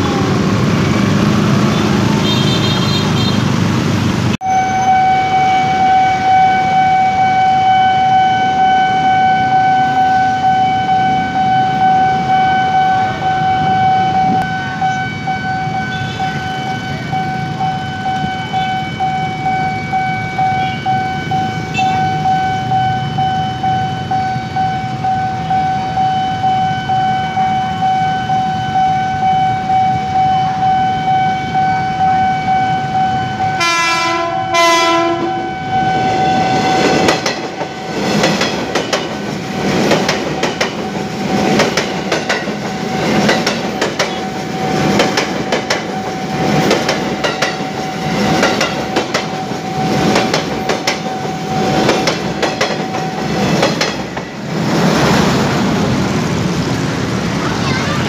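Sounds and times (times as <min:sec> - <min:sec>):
train horn blasts: 0:04.4 - 0:17.0, 0:21.7 - 0:22.1, 0:33.4 - 0:36.8
level crossing warning tone: 0:04.4 - 0:54.6
train wheels clacking on rails: 0:36.6 - 0:57.4.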